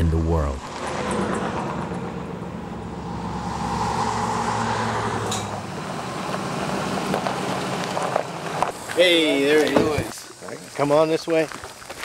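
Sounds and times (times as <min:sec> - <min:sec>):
low engine hum: 0:00.0 - 0:08.8
vehicle passing: 0:00.6 - 0:08.8.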